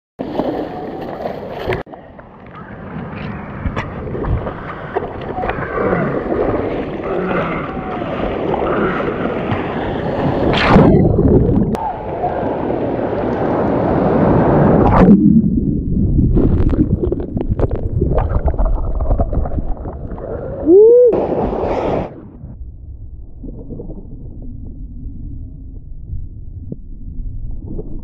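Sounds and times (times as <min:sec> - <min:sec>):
wind on microphone: 0:02.6 - 0:06.8
sea water sloshing and gurgling: 0:03.6 - 0:22.1.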